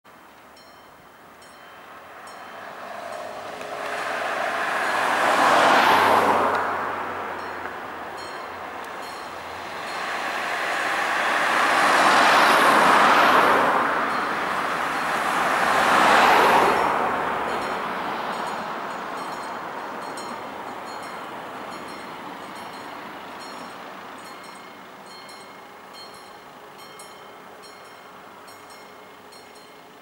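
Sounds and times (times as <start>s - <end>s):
cars passing by: 0.1s - 30.0s
level crossing warning bell: 0.5s - 3.6s, 7.3s - 10.3s, 14.0s - 15.3s, 17.4s - 30.0s.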